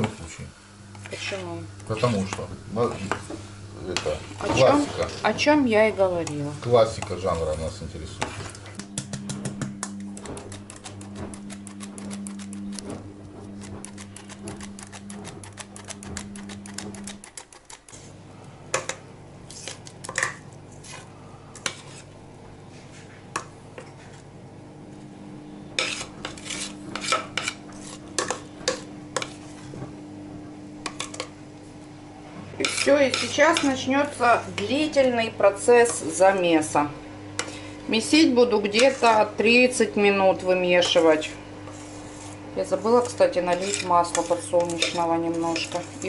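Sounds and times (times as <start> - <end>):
steady low hum: 0.0 - 46.0
metal pot knocks and scrapes: 8.2 - 18.0.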